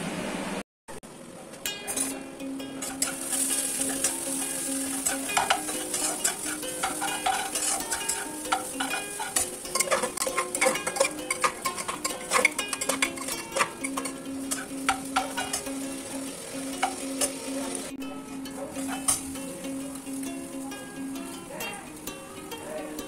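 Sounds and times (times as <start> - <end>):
frying sizzle: 0.0 - 23.0
wooden spatula scraping metal pot: 2.8 - 18.0, 18.7 - 19.4
spatula knocking against pot: 4.9 - 15.7, 16.8 - 17.4.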